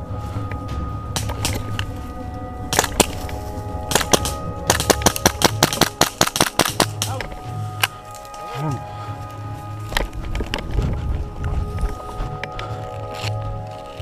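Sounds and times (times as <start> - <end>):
airsoft pistol shots: 3.9 - 7.1.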